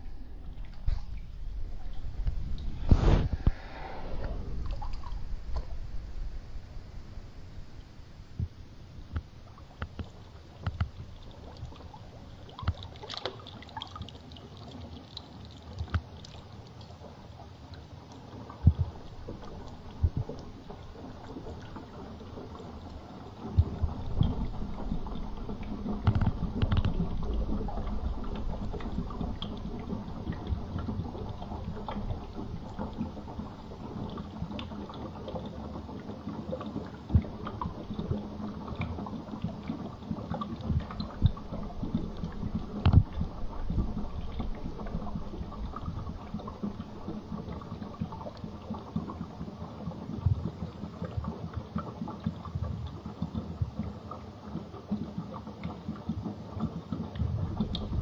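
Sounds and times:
underwater rumbling and sloshing: 0.0s - 58.0s
sharp clicks and knocks: 9.1s - 11.0s, 26.0s - 27.0s.

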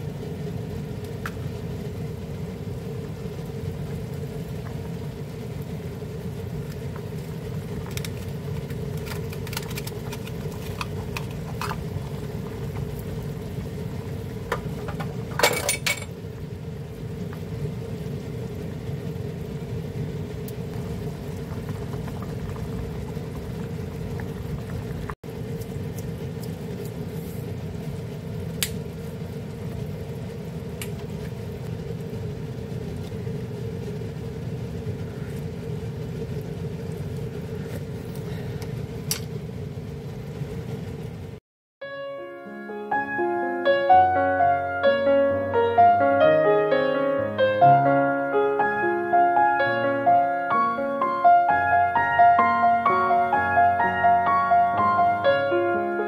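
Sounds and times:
soup boiling in a pot: 0.0s - 41.4s.

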